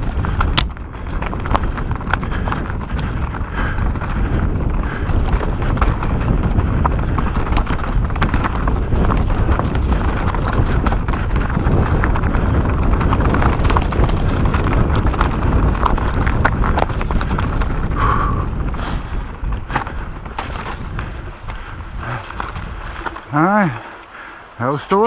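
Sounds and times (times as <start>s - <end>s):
wind on microphone: 0.0s - 24.3s
bike rattling: 0.0s - 25.0s
tyres crunching over rock: 0.0s - 25.0s.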